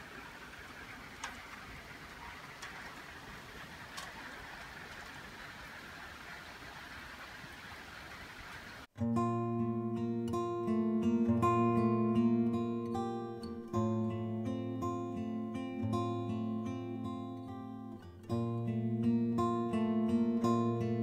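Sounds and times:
faint outdoor background hiss: 0.0 - 21.0
acoustic guitar music: 8.9 - 21.0.

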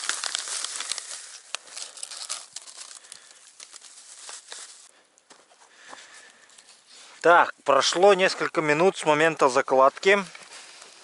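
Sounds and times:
plastic bag crinkling: 0.0 - 4.9.

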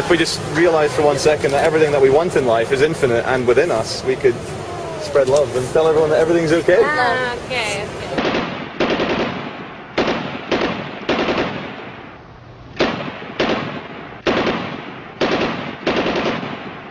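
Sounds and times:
loud bangs: 7.8 - 16.9.

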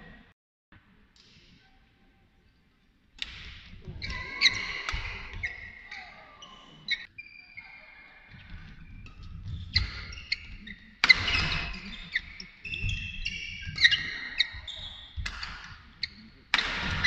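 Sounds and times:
sneakers squeaking: 3.2 - 17.0
racket striking shuttlecock: 11.0 - 12.4, 15.2 - 15.7, 16.5 - 17.0.

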